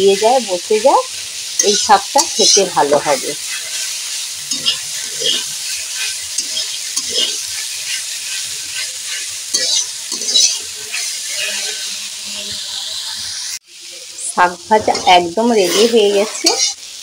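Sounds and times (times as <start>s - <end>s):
greens sizzling in hot oil: 0.0s - 17.0s
metal spatula scraping pan: 0.8s - 12.6s, 14.8s - 16.8s.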